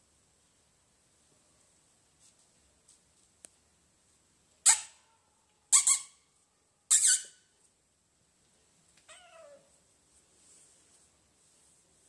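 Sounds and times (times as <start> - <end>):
kitten squeaking: 6.9 - 7.4
kitten meowing softly: 9.0 - 9.7.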